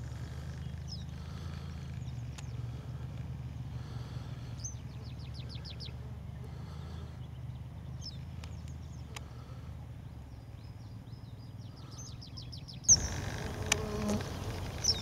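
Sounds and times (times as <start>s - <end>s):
bird chirping: 4.5s - 15.0s.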